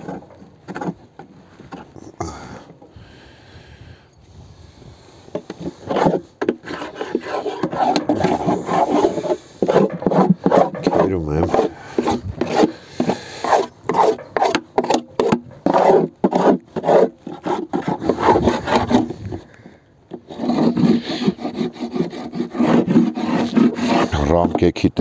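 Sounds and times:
scraper rasping on wood: 5.3s - 19.4s, 20.1s - 24.7s.

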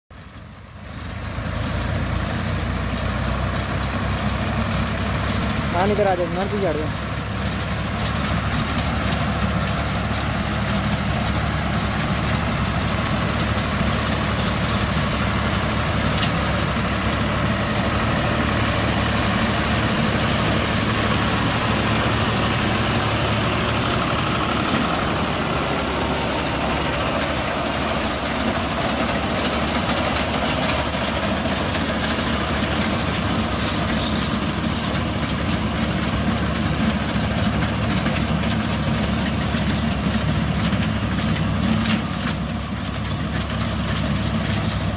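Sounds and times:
tractor diesel engine running: 0.1s - 44.9s.

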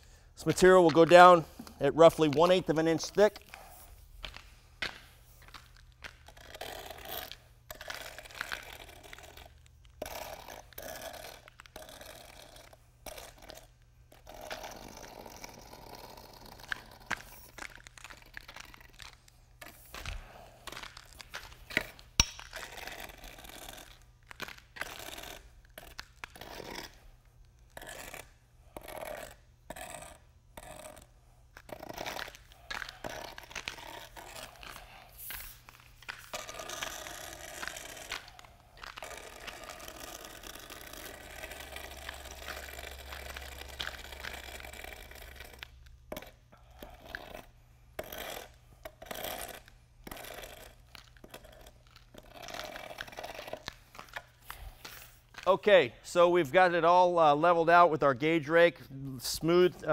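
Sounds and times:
spiked shoes stepping in mortar: 0.4s - 9.1s, 16.6s - 25.4s, 31.6s - 44.8s
rake scraping wet cement: 0.4s - 12.4s, 31.6s - 45.7s.

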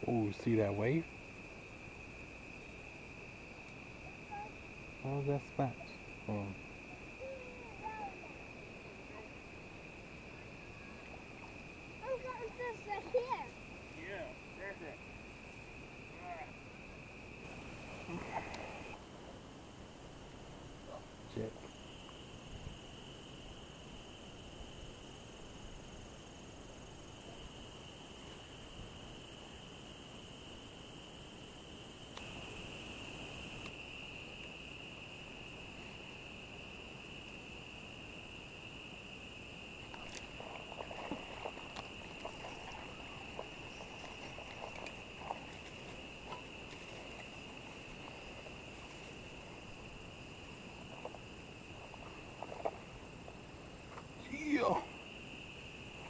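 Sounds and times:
crickets and insects chirping: 0.0s - 56.0s
faint clicks and rustles: 39.8s - 54.2s.

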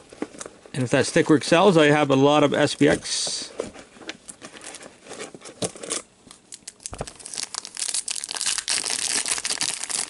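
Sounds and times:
foil wrapper crinkling: 4.2s - 10.0s.

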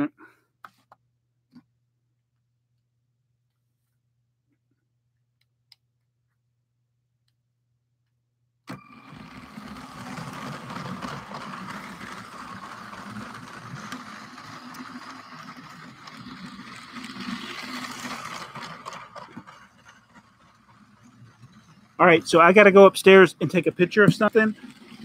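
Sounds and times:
toy train motor humming: 8.7s - 25.0s
wheels clicking on plastic track: 8.7s - 25.0s.

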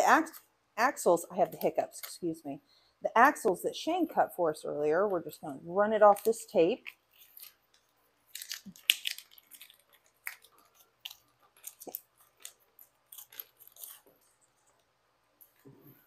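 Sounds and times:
tape peeling crackles: 6.1s - 15.6s.

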